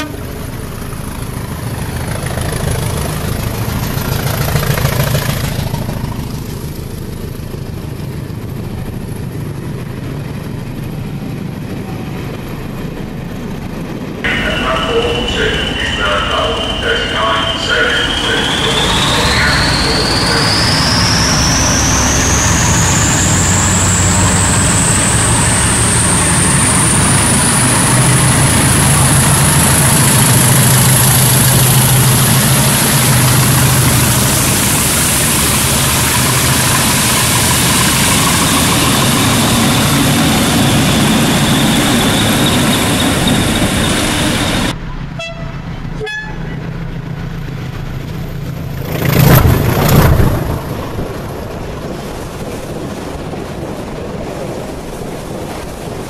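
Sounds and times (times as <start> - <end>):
diesel locomotive engine beat: 0.0 - 56.0
turbocharger whistle: 15.2 - 27.6.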